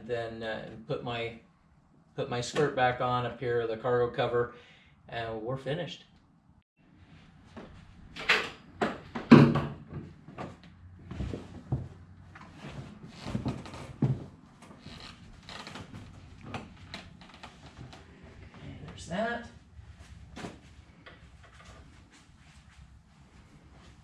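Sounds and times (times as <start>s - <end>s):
carpet rustling: 10.2s - 18.2s.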